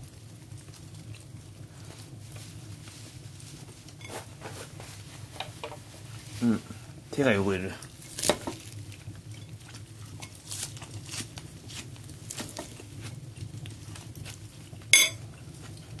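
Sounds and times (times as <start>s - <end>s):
paper tissue rustling: 1.4s - 6.9s.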